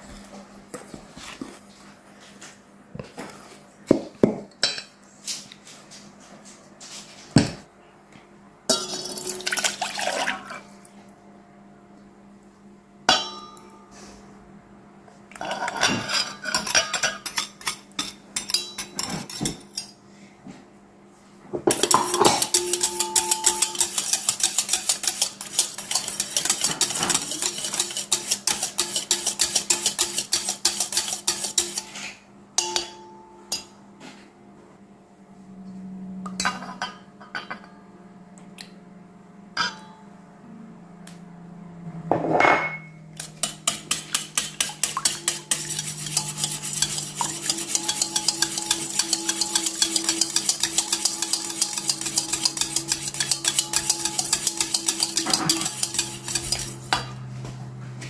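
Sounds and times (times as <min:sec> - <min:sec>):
utensils clinking in steel bowl: 0:08.7 - 0:10.6, 0:15.4 - 0:20.0, 0:21.7 - 0:32.0, 0:32.6 - 0:33.8, 0:42.6 - 0:57.2
whisk beating in steel bowl: 0:21.7 - 0:32.0, 0:43.2 - 0:57.2.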